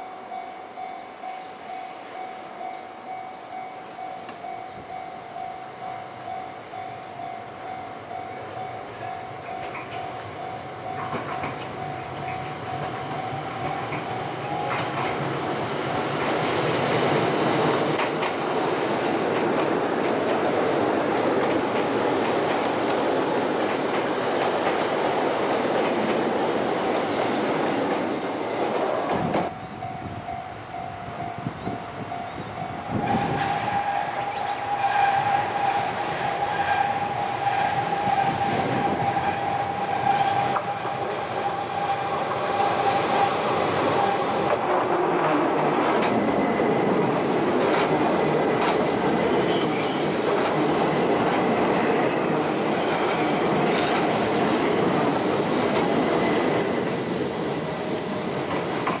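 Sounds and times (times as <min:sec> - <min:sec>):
electric train whine: 0:00.0 - 0:59.0
train rumbling and wheel clatter: 0:00.0 - 0:59.0
wheel squeals: 0:48.0 - 0:51.0.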